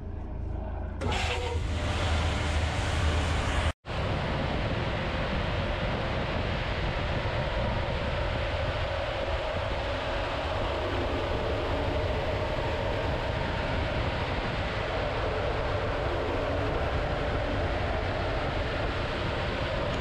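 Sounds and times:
blower rushing with hum: 0.6s - 20.0s.

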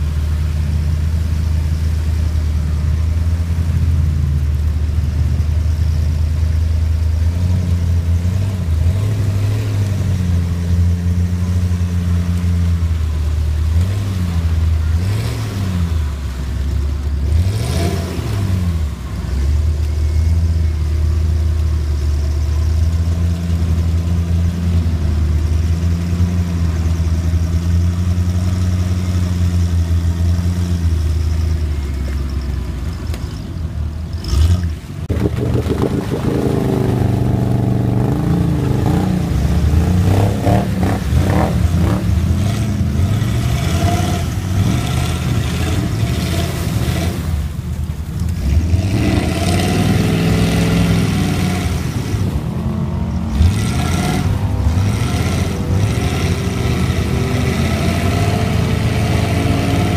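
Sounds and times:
truck engine revving: 0.0s - 59.9s.

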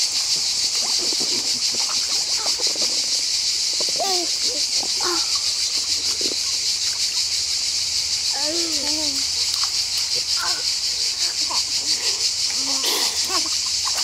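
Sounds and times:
children splashing water: 0.0s - 7.8s, 8.4s - 14.0s
pulsing high-pitched hiss: 0.0s - 14.0s
baby vocal sounds: 3.8s - 5.5s, 10.4s - 13.5s.

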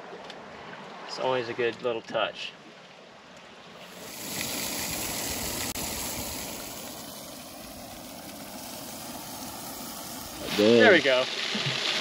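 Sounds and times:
gas stove burner hissing: 3.9s - 11.2s.

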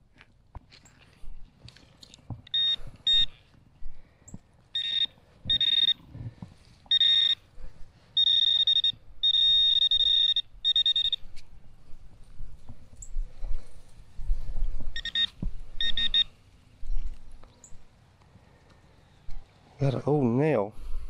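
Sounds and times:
metal detector alert tone: 2.5s - 3.4s, 4.8s - 6.1s, 6.9s - 7.4s, 8.2s - 11.3s, 15.0s - 16.3s.

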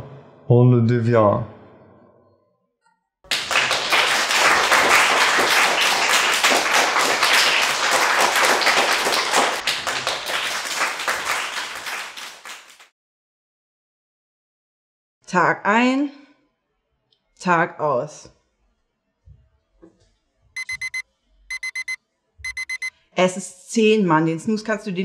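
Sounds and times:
people applauding: 3.3s - 12.9s.

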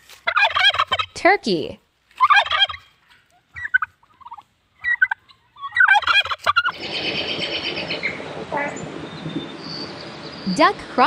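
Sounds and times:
turkeys gobbling: 0.2s - 1.2s, 2.2s - 8.4s
high chirping: 3.5s - 10.8s.

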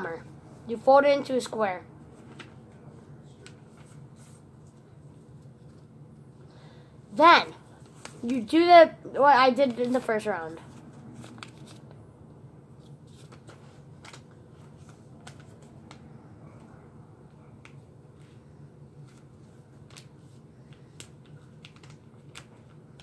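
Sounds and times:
faint low hum: 0.0s - 23.0s
paper crinkling: 9.7s - 12.0s, 12.8s - 16.0s, 19.0s - 23.0s.

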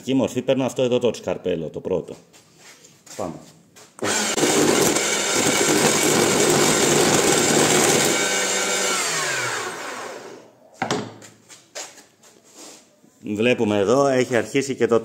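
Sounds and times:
gouge cutting spinning wood: 4.0s - 10.4s
wood lathe motor hum: 4.0s - 10.4s.

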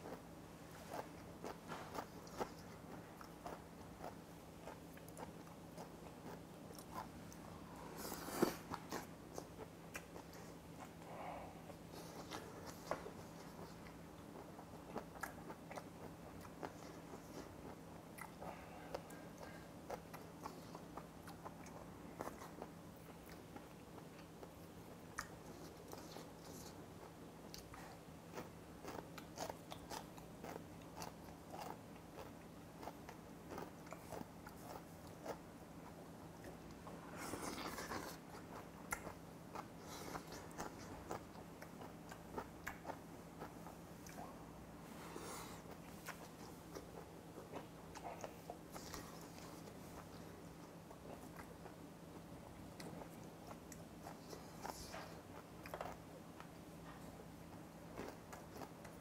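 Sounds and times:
man chewing and smacking: 0.0s - 11.0s, 11.7s - 59.0s.

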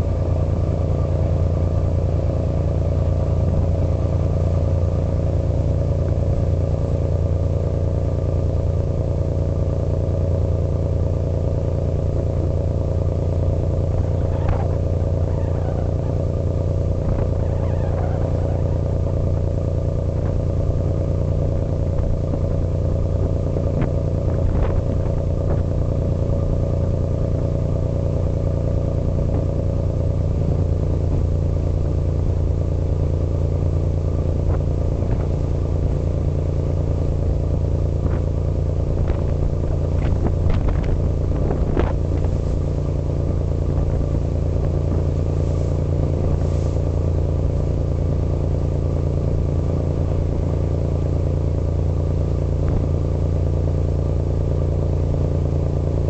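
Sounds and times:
ferry engine droning: 0.0s - 56.0s.

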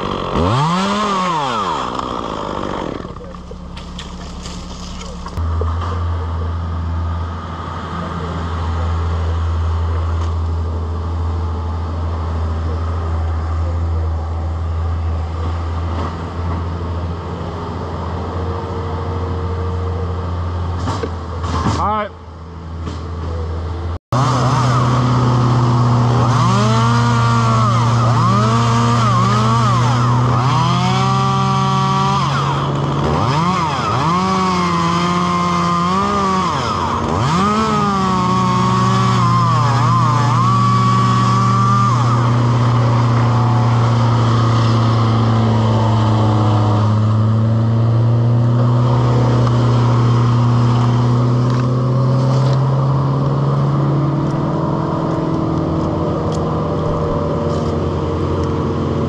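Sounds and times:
chainsaw cutting wood: 0.0s - 6.0s, 24.2s - 53.4s
engine drone: 0.0s - 59.0s.

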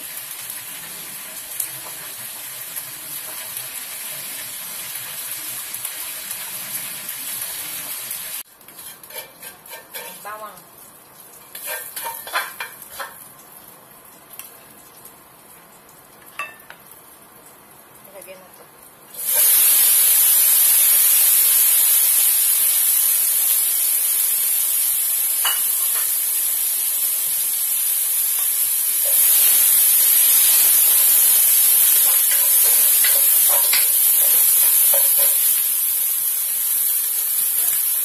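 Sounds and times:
oil sizzling in a wok: 0.0s - 38.0s.

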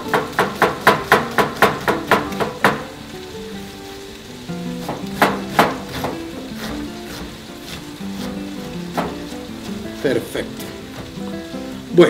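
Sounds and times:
knife chopping on cutting board: 0.1s - 2.8s, 4.8s - 11.2s.

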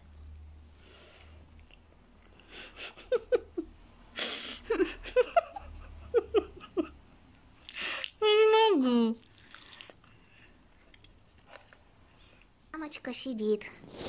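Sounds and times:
woman giggling: 2.5s - 7.0s.

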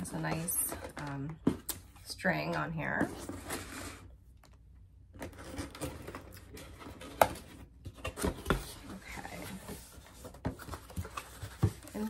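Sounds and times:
cardboard box rustling and scraping: 2.8s - 4.1s, 5.2s - 12.0s.

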